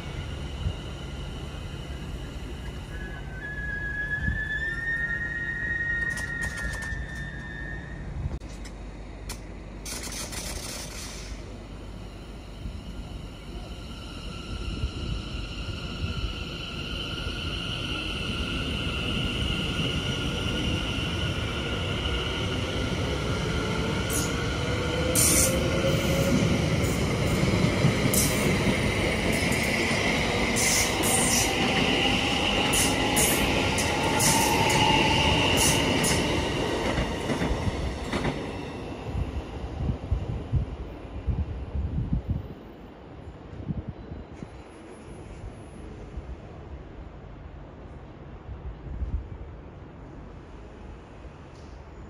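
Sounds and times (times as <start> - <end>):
electric train motors whining: 1.4 - 7.9
wheels squealing on track: 2.9 - 8.0.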